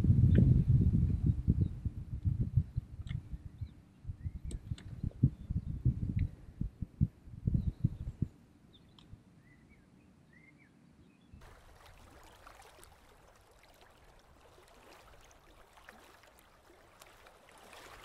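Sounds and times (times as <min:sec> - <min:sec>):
faint bird chirps: 0:07.5 - 0:11.4
small splashes: 0:11.4 - 0:18.0
water lapping and gurgling: 0:11.4 - 0:18.0.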